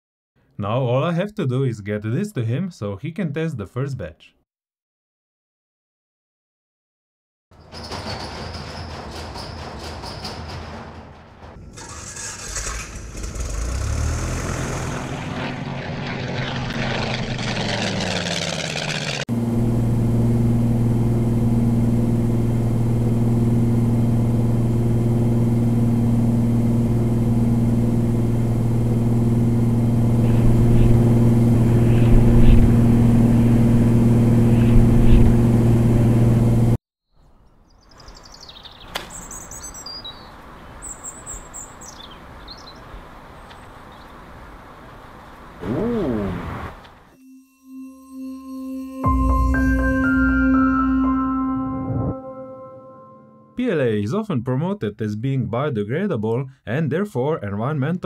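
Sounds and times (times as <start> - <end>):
aircraft engine droning: 11.2 - 36.8
birds chirping: 37.1 - 46.6.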